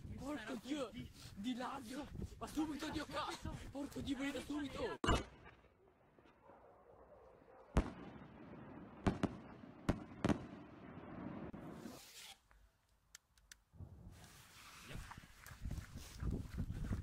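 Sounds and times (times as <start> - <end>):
distant firework shells bursting: 7.7 - 11.7.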